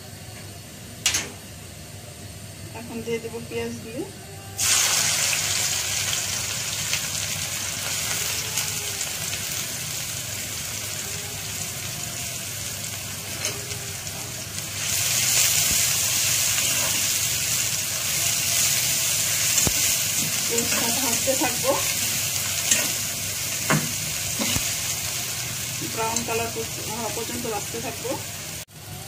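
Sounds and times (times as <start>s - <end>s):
onions sizzling in hot oil: 4.6s - 29.0s.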